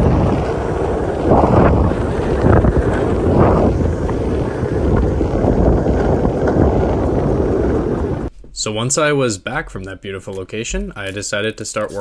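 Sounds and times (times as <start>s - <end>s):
skateboard wheels rolling on asphalt: 0.0s - 8.3s
wind buffeting microphone: 0.0s - 8.3s.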